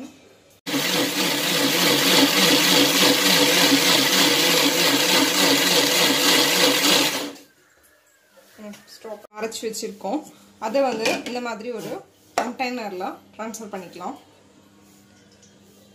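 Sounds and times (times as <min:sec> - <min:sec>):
mixer grinder blending: 0:00.7 - 0:07.4.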